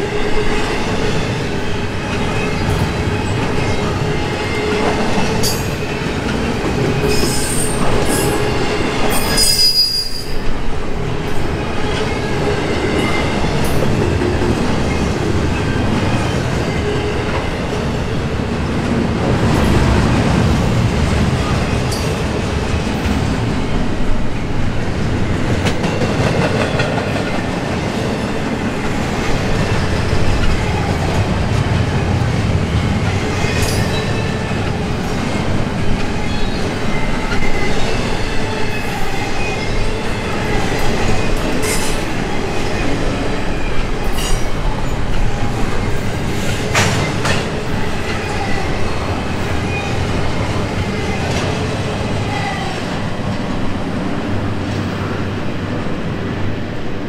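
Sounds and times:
freight train wheels rumbling on rail: 0.0s - 57.0s
high wheel squeals: 7.0s - 10.4s.

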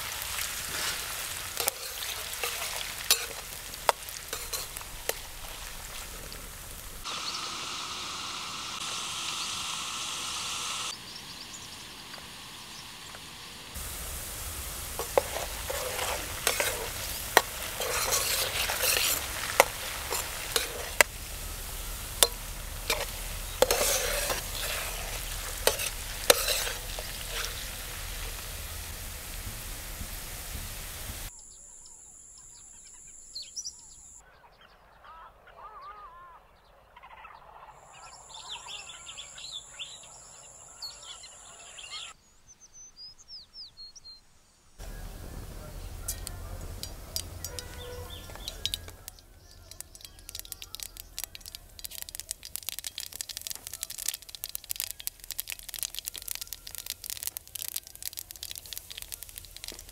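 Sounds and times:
potatoes sizzling in oil: 0.0s - 31.3s, 44.8s - 59.9s
small birds chirping: 0.0s - 59.9s
metal ladle clinking on pan: 1.6s - 5.4s, 22.2s - 27.7s, 46.1s - 49.1s.

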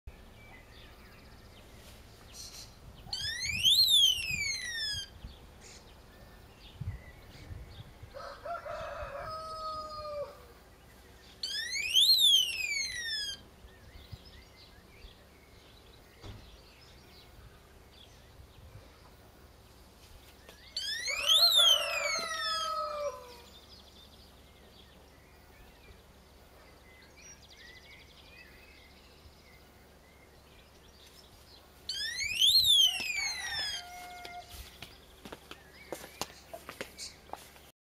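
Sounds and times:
electronic alarm siren sweep: 3.1s - 5.2s, 11.4s - 13.4s, 20.8s - 23.0s, 31.9s - 34.3s
rooster crowing: 8.1s - 10.6s, 20.8s - 23.5s, 32.6s - 34.7s.

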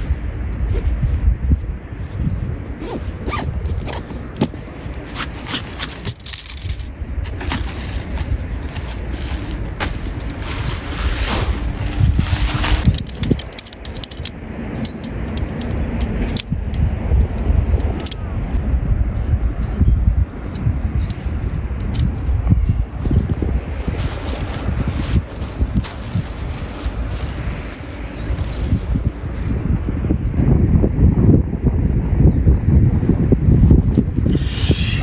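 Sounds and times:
wind rumble on microphone: 0.0s - 35.0s
nylon fabric rustling: 2.8s - 13.2s, 23.2s - 29.6s.

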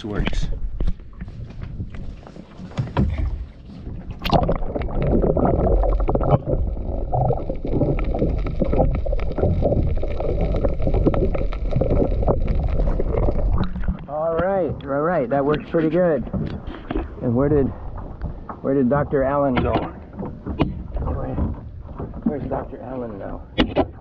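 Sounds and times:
muffled underwater sloshing and bubbling: 0.0s - 24.0s
water splash: 2.6s - 14.2s.

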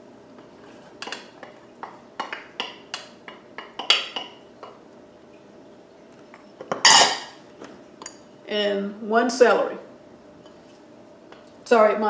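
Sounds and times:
wooden spoon knocking on bowl: 1.0s - 4.8s.

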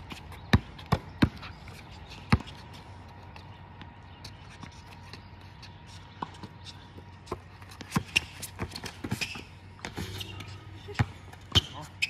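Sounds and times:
sneakers scuffing and squeaking: 0.0s - 12.0s
basketball bouncing: 0.1s - 1.4s, 2.3s - 2.6s, 7.3s - 11.8s.

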